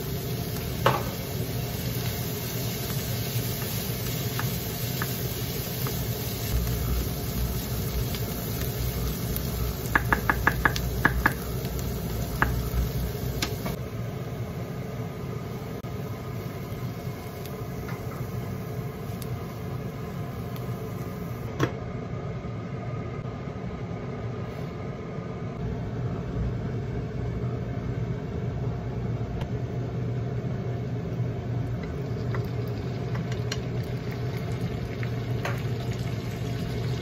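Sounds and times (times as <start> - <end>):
steady low hum: 0.0 - 37.0
spatula stirring vegetables in pan: 1.8 - 13.8
spatula knocking against pan: 9.9 - 11.4.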